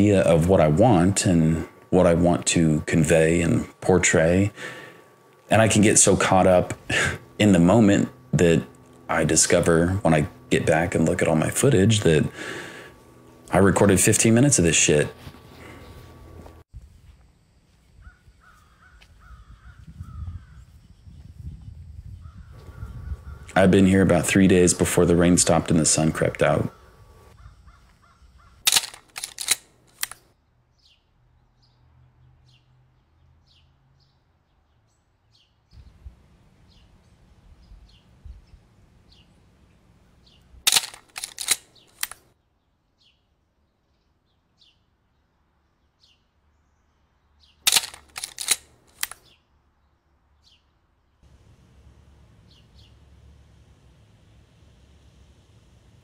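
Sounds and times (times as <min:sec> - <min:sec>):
camera shutter clicks: 0:28.6 - 0:30.2, 0:40.7 - 0:42.2, 0:47.7 - 0:49.3.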